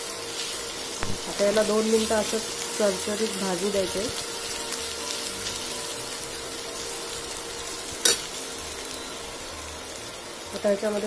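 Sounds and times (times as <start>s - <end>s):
vegetables sizzling in oil: 0.0s - 11.0s
steel spoon clacking pan: 8.0s - 8.3s.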